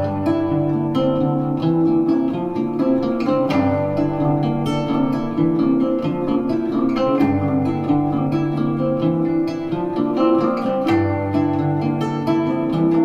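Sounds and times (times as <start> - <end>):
plucked string music over speakers: 0.0 - 13.0.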